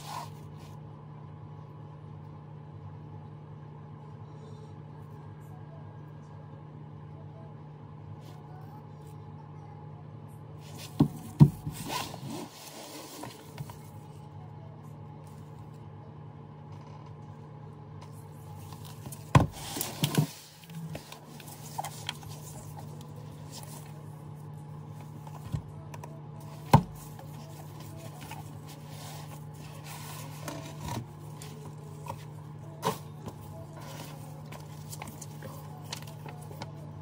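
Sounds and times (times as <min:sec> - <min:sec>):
steady low hum: 0:00.0 - 0:37.0
knocks and taps on cardboard box: 0:10.8 - 0:11.8
paper rustle: 0:18.6 - 0:24.1, 0:26.4 - 0:36.7.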